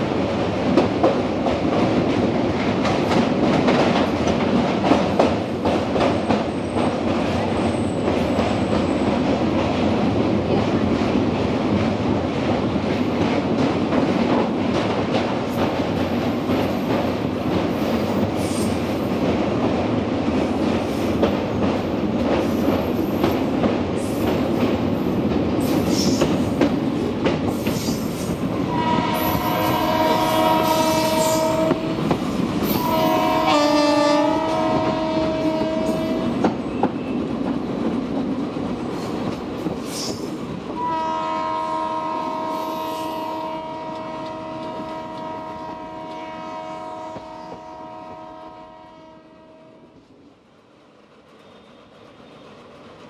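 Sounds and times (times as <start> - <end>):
train wheels rumbling on steel bridge: 0.0 - 53.0
locomotive horn blasts: 28.7 - 32.0, 32.8 - 36.4, 40.8 - 50.0.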